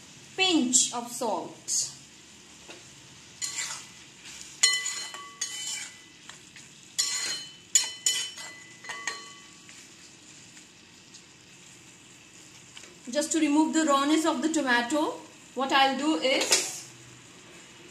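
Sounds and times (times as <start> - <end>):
faint sizzle: 0.0 - 17.9
metal spatula scraping pan: 3.4 - 4.0, 4.6 - 6.1, 7.0 - 9.5.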